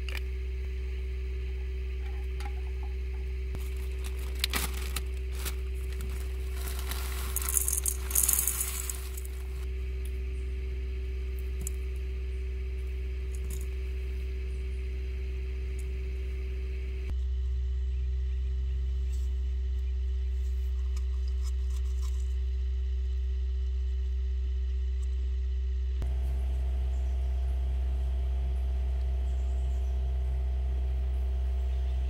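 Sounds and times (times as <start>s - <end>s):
steady low hum: 0.0s - 32.0s
granola rattling: 3.6s - 9.7s
plastic bag crinkling: 3.6s - 9.7s.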